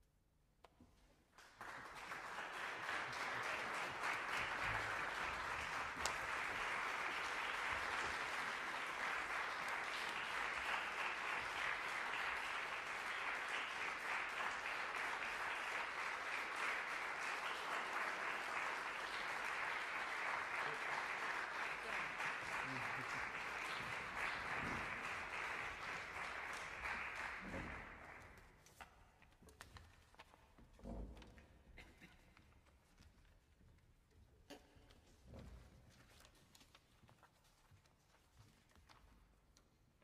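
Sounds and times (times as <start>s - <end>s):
audience clapping: 1.3s - 28.9s.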